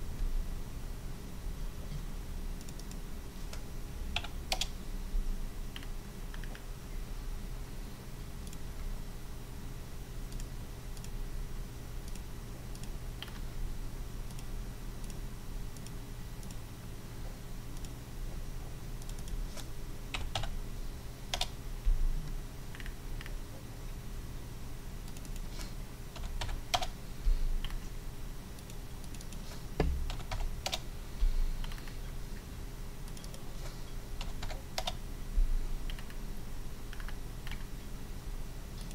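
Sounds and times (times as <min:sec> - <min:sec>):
low electrical hum: 0:00.0 - 0:38.9
computer mouse clicks: 0:02.6 - 0:03.6, 0:04.2 - 0:04.8, 0:05.7 - 0:06.7, 0:08.4 - 0:08.9, 0:10.3 - 0:11.2, 0:12.0 - 0:13.5, 0:14.3 - 0:16.6, 0:17.7 - 0:18.0, 0:19.0 - 0:20.6, 0:21.3 - 0:21.6, 0:22.7 - 0:23.4, 0:25.0 - 0:27.0, 0:28.5 - 0:30.9, 0:31.6 - 0:32.2, 0:33.0 - 0:33.4, 0:34.2 - 0:35.0, 0:35.9 - 0:36.2, 0:36.9 - 0:37.7.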